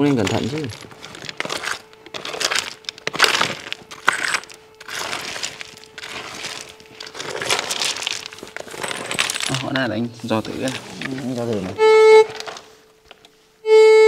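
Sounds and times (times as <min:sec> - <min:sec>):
stones scraped and raked by hand: 0:00.0 - 0:11.6
metal detector tone: 0:11.8 - 0:12.6, 0:13.6 - 0:14.0.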